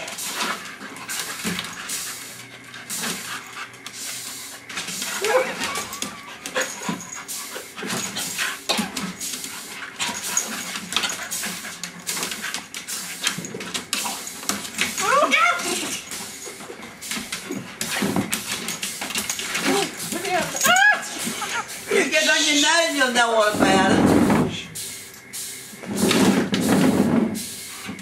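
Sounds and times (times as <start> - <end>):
dog panting and sniffing: 0.0 - 15.0, 15.7 - 20.6
dog whining: 5.1 - 7.7, 19.6 - 21.9.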